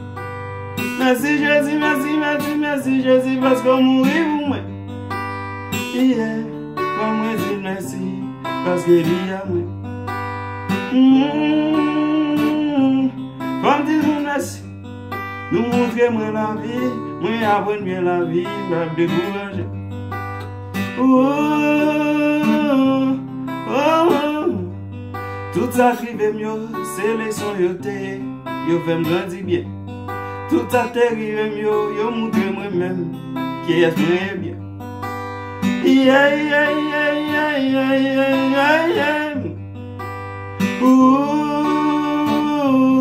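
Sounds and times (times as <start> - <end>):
acoustic guitar strumming: 0.0 - 43.0
man singing: 0.7 - 39.8, 40.4 - 43.0.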